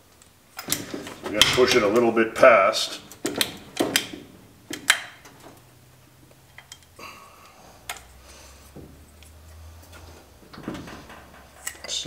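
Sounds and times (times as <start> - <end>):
hydraulic ram clicking: 3.1 - 5.6.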